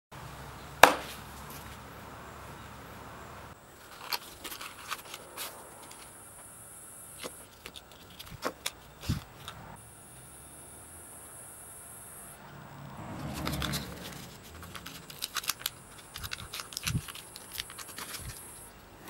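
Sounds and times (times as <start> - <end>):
sharp knock: 0.8 - 1.1.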